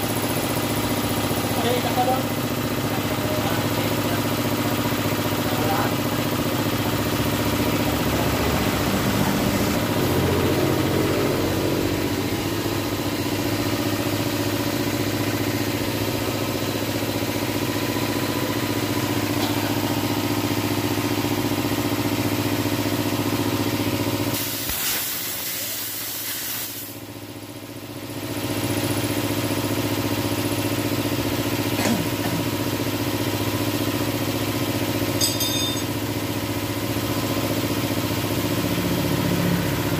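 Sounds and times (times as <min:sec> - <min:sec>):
air compressor pulsing hum: 0:00.0 - 0:39.9
air hiss: 0:24.4 - 0:27.0.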